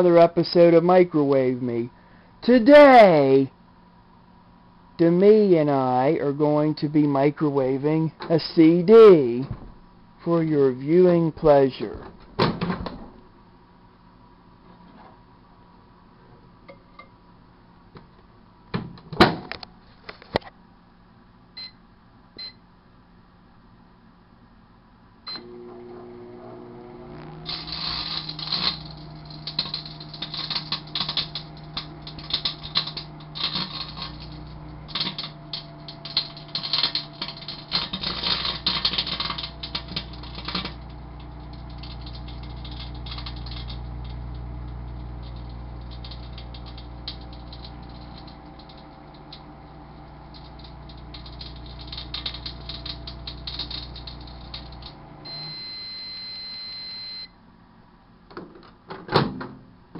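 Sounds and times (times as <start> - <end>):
microwave oven humming: 12.1 - 58.3
crackling sparks from arcing: 27.4 - 49.4, 50.2 - 55.0
short beeps: 55.3 - 57.4.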